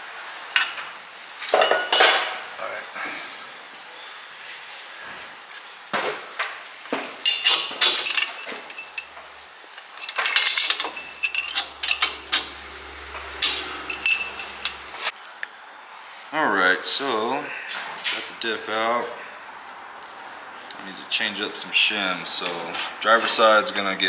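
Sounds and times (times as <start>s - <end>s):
steel parts clinking and clanking: 1.5s - 2.4s, 6.4s - 15.1s
sharp metal knocks: 10.0s - 15.0s.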